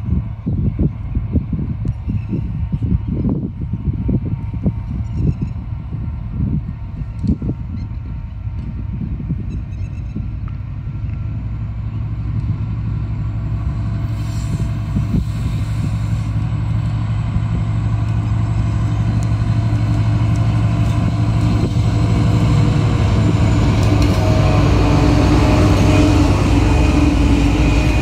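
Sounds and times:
diesel locomotive engine drone: 0:00.0 - 0:28.0.

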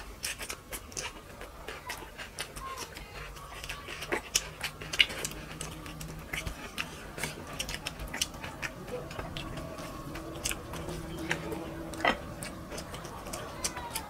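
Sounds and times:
fingers squishing rice: 0:00.0 - 0:14.0
wet smacking and chewing: 0:00.0 - 0:14.0.

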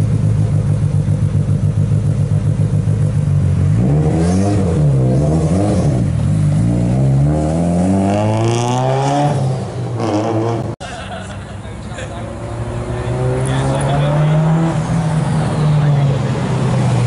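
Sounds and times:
car engine idling and revving: 0:00.0 - 0:17.0.

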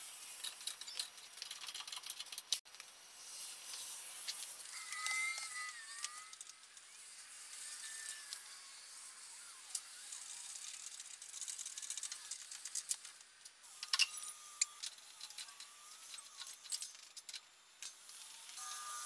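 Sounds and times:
metal tools clinking: 0:13.8 - 0:15.7.

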